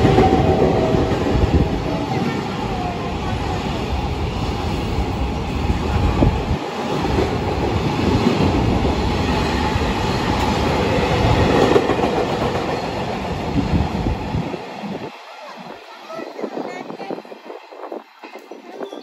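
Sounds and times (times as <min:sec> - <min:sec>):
freight train wheels on rails: 0:00.0 - 0:19.0.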